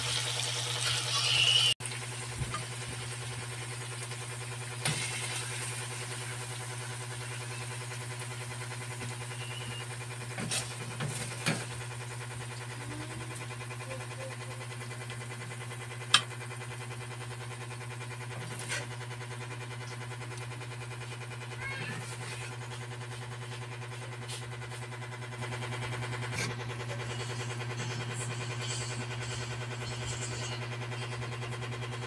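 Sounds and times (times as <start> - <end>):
steady low hum: 9.4 - 32.0.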